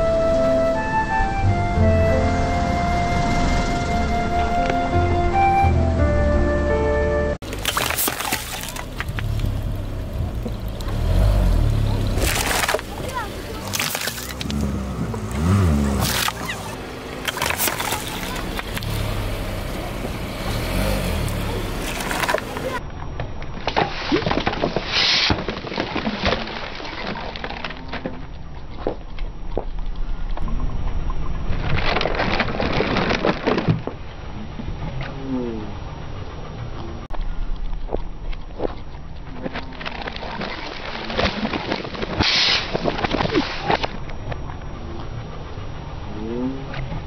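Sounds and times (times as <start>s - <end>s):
plastic bottles crunching under tyre: 7.4s - 22.8s, 23.7s - 29.0s, 31.5s - 34.1s, 39.6s - 44.1s.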